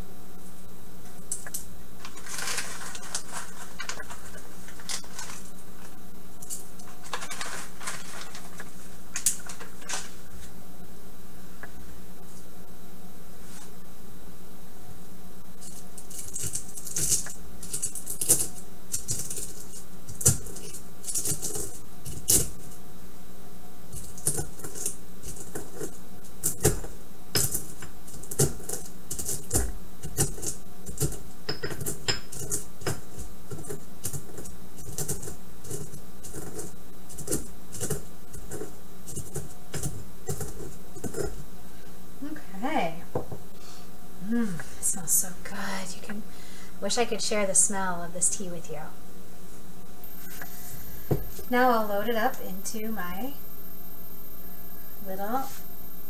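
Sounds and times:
dry crunching and scraping: 0:02.0 - 0:10.5.

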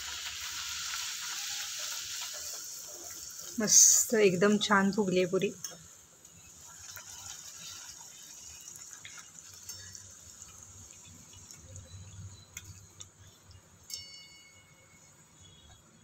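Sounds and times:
hot oil sizzling: 0:00.0 - 0:16.0
small crackles: 0:05.6 - 0:13.6.

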